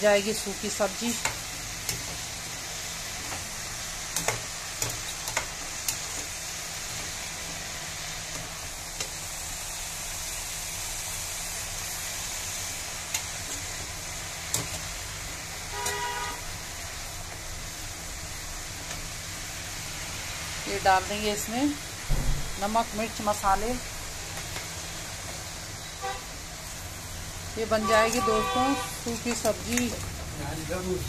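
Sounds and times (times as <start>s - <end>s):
green onions sizzling in a pan: 0.0s - 31.0s
pitched honk: 15.7s - 16.5s.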